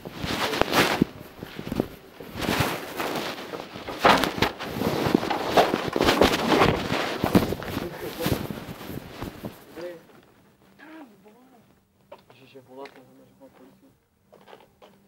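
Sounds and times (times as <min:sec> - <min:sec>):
rustling and scraping: 0:00.0 - 0:11.4.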